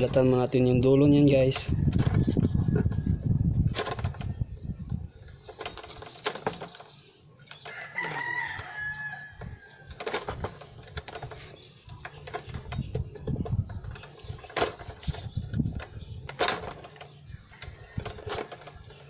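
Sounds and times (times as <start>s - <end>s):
rooster crowing: 7.7s - 9.9s.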